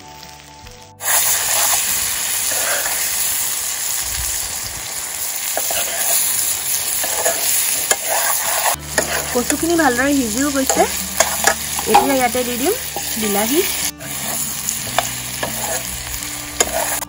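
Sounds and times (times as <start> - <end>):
food sizzling in oil: 0.0 - 17.0
ladle stirring: 5.5 - 17.0.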